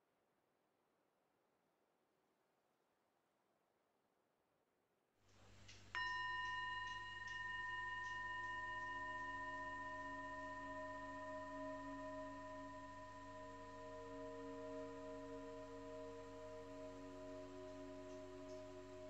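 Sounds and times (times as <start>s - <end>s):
faint steady hum: 5.3s - 19.0s
soft sustained low tones: 5.6s - 19.0s
bell-like tone ringing: 6.0s - 19.0s.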